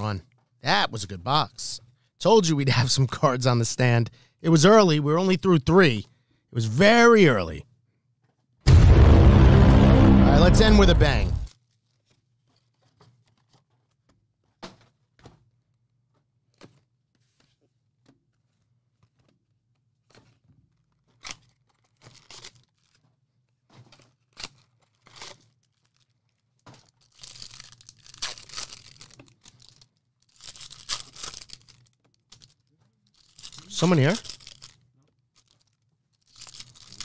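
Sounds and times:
card packaging tearing: 0:27.0 - 0:32.5, 0:33.2 - 0:34.8, 0:36.3 - 0:37.0.

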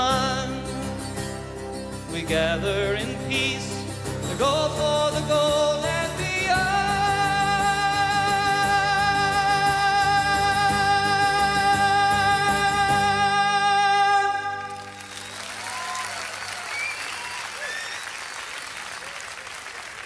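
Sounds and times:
strummed acoustic guitar: 0:00.0 - 0:15.0
man singing with vibrato: 0:00.0 - 0:15.1
audience applause: 0:14.6 - 0:20.0.

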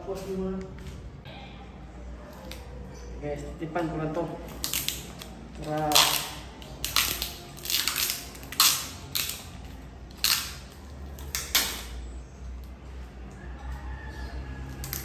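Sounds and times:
packing tape ripping off roll: 0:04.4 - 0:12.0.

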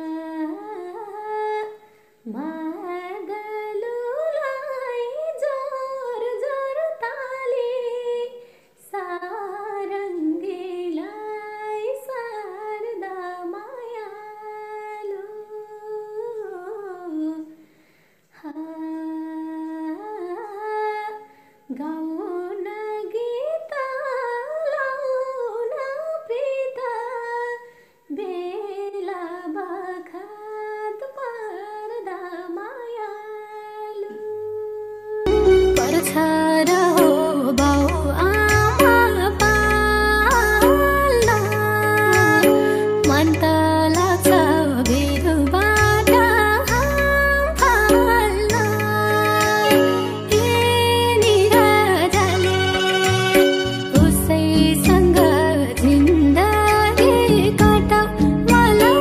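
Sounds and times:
woman singing wordless melody: 0:00.0 - 0:17.6, 0:18.4 - 0:59.0.

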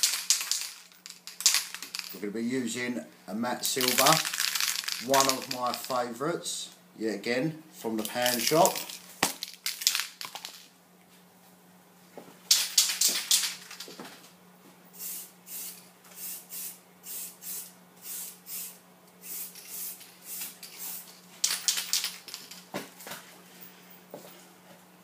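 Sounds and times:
spray paint can hissing: 0:15.0 - 0:21.1.

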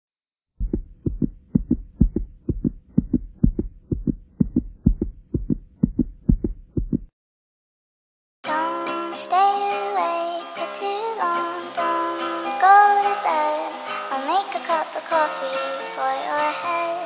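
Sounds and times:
deep heartbeat-like thumps: 0:00.6 - 0:07.1.

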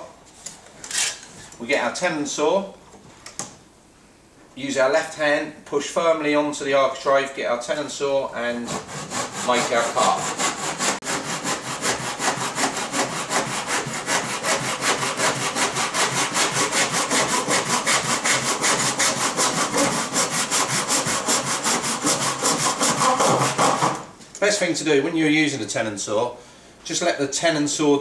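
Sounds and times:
hand saw cutting wood: 0:08.4 - 0:24.1.

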